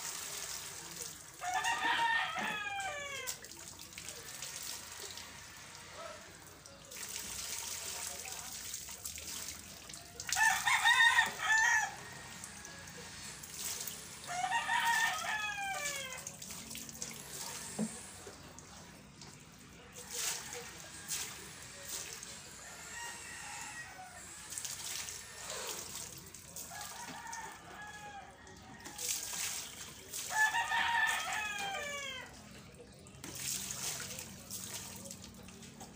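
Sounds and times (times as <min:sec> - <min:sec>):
water poured and splashing: 0:00.0 - 0:01.6, 0:03.2 - 0:11.4, 0:12.0 - 0:22.4, 0:24.3 - 0:27.5, 0:28.7 - 0:35.9
roosters crowing: 0:01.4 - 0:03.4, 0:10.4 - 0:13.2, 0:14.0 - 0:16.2, 0:22.5 - 0:25.7, 0:26.6 - 0:29.5, 0:30.3 - 0:32.4.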